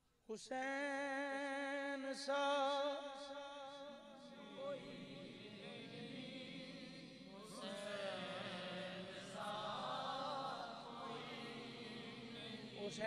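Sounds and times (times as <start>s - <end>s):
men chanting: 4.3s - 13.0s.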